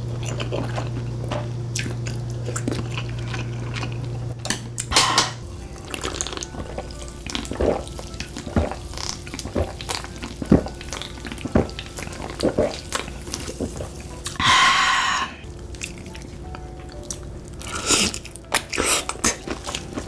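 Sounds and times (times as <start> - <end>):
gulping drink: 5.8 - 13.8.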